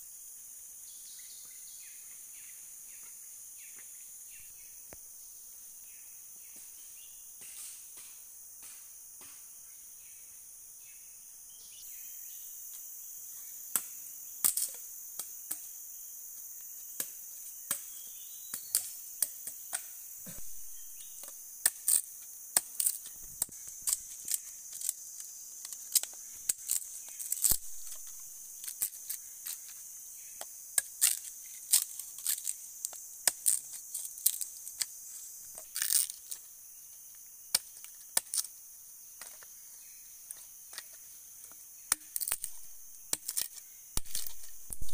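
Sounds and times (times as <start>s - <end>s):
high insect buzz: 0.0s - 44.9s
machete chopping sticks: 7.4s - 9.4s, 18.6s - 24.9s.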